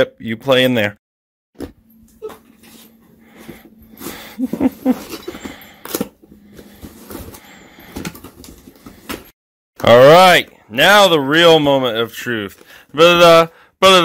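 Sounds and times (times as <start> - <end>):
cardboard rustling: 3.4 - 9.3.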